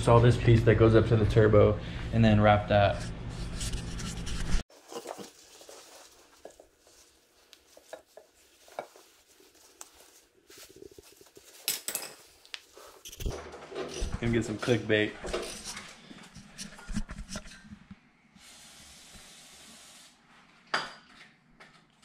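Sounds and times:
tape rustling: 0:03.6 - 0:13.3.

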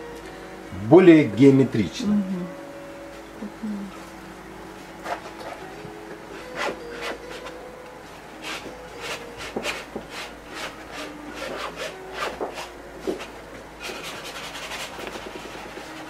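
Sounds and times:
paint tool scraping canvas: 0:05.0 - 0:05.6, 0:06.6 - 0:07.5, 0:08.4 - 0:16.0.

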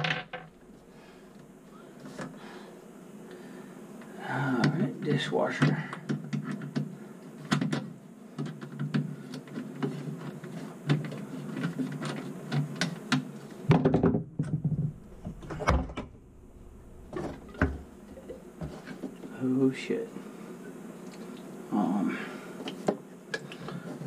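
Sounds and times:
clunking handling noise: 0:13.8 - 0:19.2.

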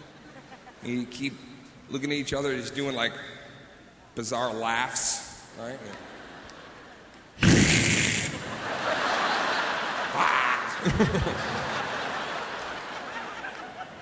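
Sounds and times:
audience laughing: 0:08.0 - 0:14.0.

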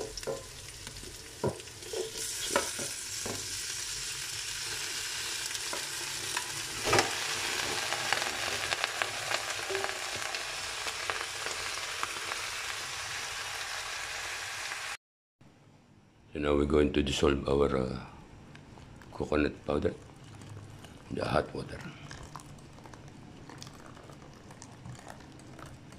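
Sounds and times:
meat sizzling in oil: 0:00.0 - 0:15.0.

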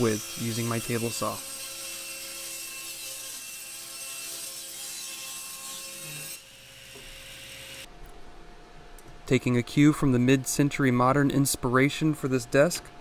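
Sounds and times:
table saw cutting wood: 0:00.0 - 0:07.9.

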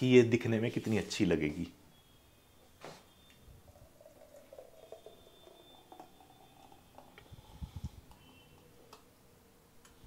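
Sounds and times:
smoothie pouring into a glass: 0:03.5 - 0:08.4.

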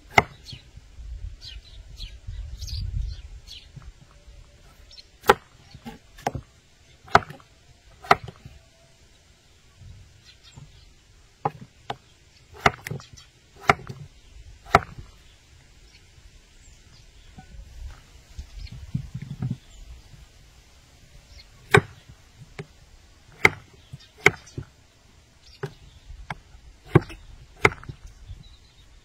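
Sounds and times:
knife chopping on cutting board: 0:07.1 - 0:07.4, 0:12.6 - 0:13.0, 0:13.6 - 0:14.0.

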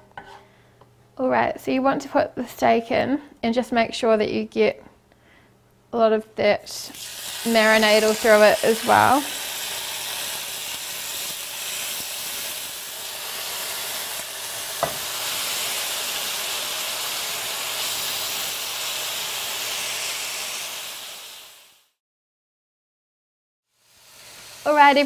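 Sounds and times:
steaks sizzling in a pan: 0:06.9 - 0:21.8, 0:23.8 - 0:25.0.

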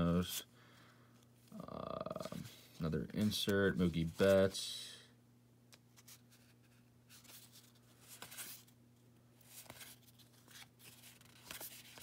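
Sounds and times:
low steady hum: 0:00.0 - 0:12.0
cards rustling and clicking: 0:01.2 - 0:04.6, 0:05.7 - 0:08.8, 0:09.4 - 0:12.0.

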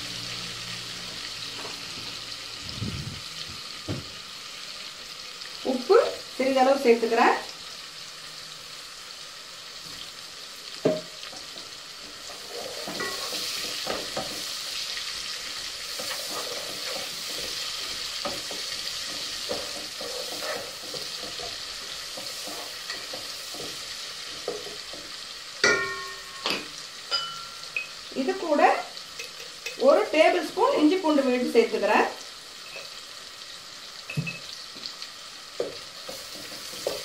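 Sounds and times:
onions sizzling in oil: 0:00.0 - 0:37.0
wooden spatula scraping a pot: 0:12.1 - 0:14.5, 0:15.9 - 0:25.2.

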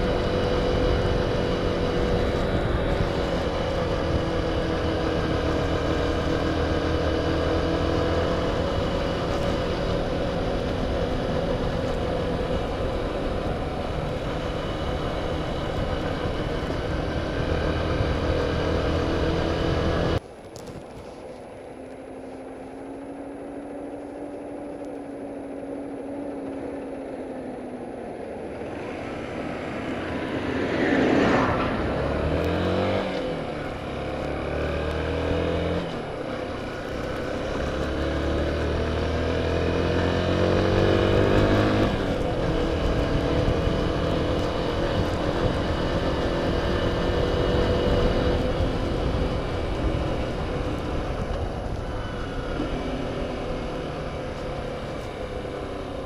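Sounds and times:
motorcycle engine running: 0:00.0 - 0:56.0
road noise: 0:00.0 - 0:56.0
tractor approaching: 0:00.0 - 0:56.0
wind noise: 0:28.6 - 0:56.0.

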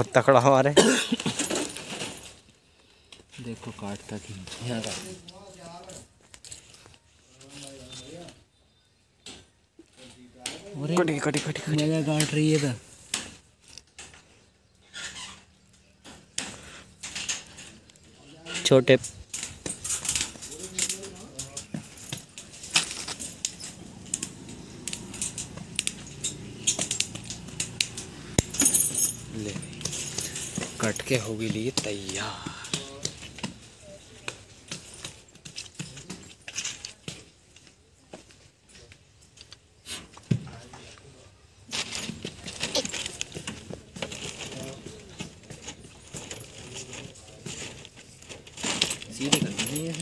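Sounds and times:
metallic clinks and rattles: 0:16.0 - 0:32.0, 0:32.8 - 0:37.7, 0:41.7 - 0:50.0
metal jingling: 0:17.0 - 0:32.0, 0:33.6 - 0:37.1, 0:41.7 - 0:50.0
low voices talking: 0:20.3 - 0:34.6.

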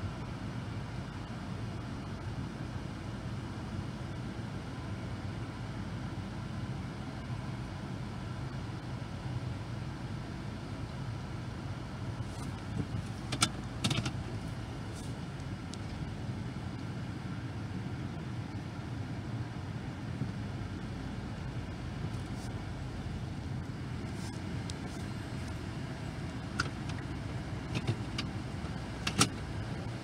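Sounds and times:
car engine idling: 0:10.4 - 0:30.0.

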